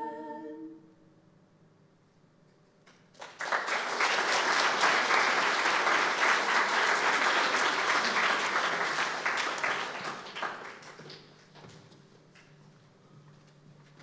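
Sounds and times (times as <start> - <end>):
audience applauding: 3.1 - 11.6.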